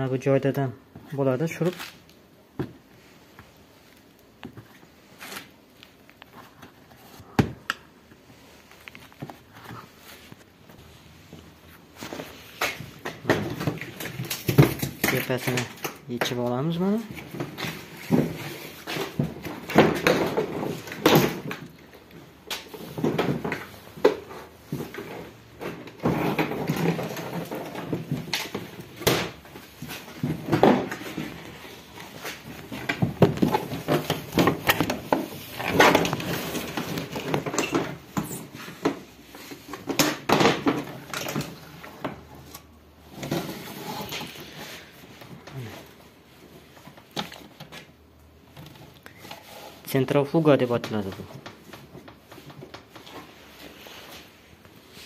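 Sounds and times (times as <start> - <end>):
plastic knocks and rattles: 22.8 - 31.4, 32.6 - 39.1.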